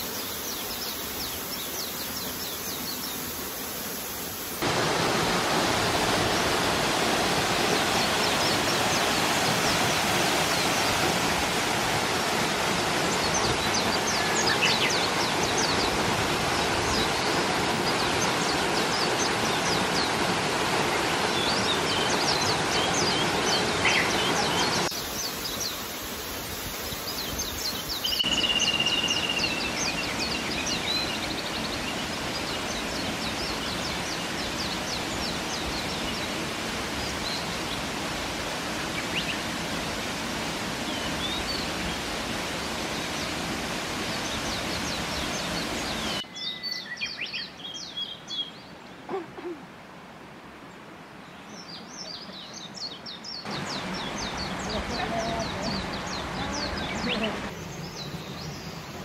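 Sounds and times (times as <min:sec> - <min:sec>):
small birds chirping: 0:00.0 - 0:04.6, 0:12.0 - 0:37.9, 0:51.2 - 0:59.0
waterfall rushing: 0:00.0 - 0:46.3, 0:51.5 - 0:59.0.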